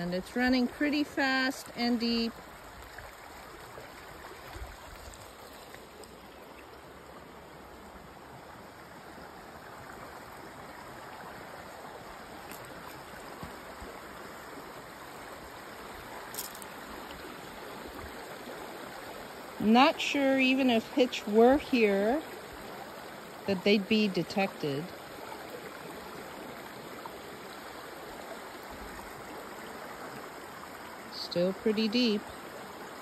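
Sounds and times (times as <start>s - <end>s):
creek rushing: 0.0s - 33.0s.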